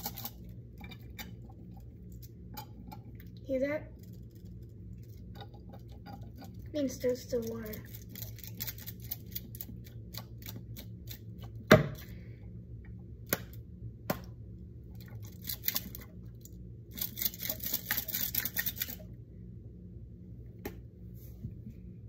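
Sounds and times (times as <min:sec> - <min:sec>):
beads rattling in container: 0:07.2 - 0:09.7.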